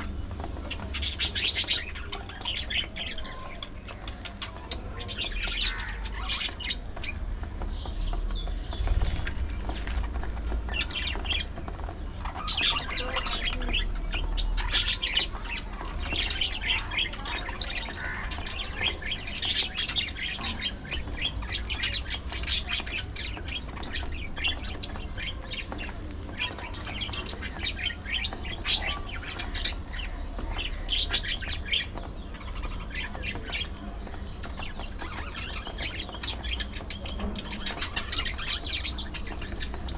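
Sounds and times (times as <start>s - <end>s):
budgerigars chirping and squawking: 0.0s - 39.9s.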